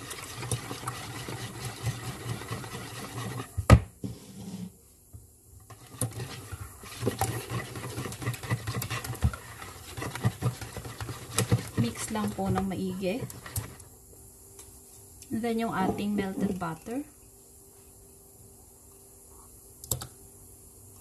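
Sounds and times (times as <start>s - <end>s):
whisk ticking against plastic bowl: 0.0s - 3.5s, 5.7s - 13.8s.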